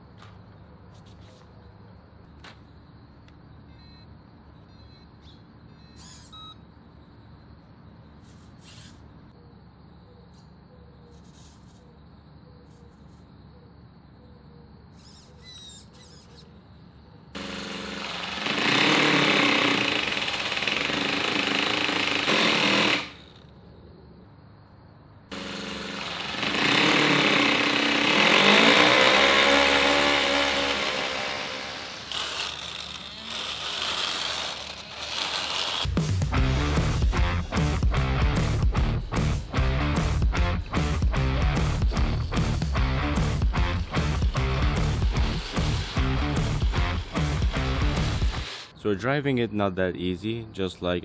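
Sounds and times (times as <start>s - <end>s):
model car engine revving: 26.8s - 35.9s
music: 35.9s - 48.5s.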